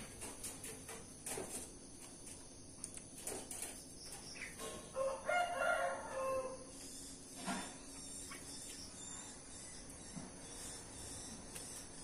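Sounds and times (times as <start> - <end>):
rooster crowing: 4.9 - 6.7.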